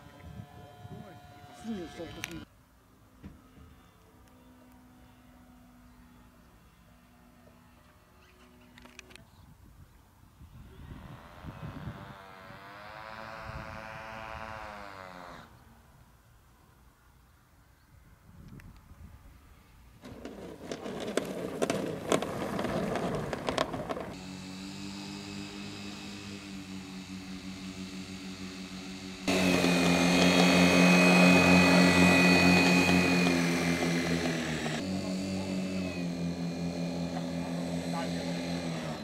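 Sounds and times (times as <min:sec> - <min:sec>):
propeller motor running: 0:00.0 - 0:02.5, 0:20.1 - 0:39.0
model aircraft clattering on grass: 0:20.0 - 0:24.2.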